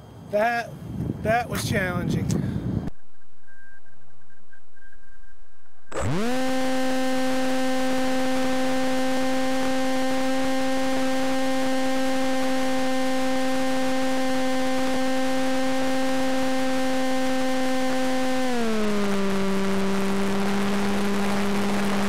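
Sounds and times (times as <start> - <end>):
electric motor and propeller whine: 5.9 - 22.0.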